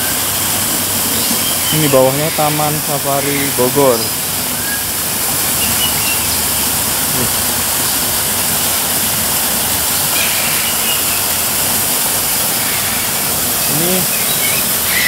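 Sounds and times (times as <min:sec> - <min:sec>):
waterfall rushing into pool: 0:00.0 - 0:15.0.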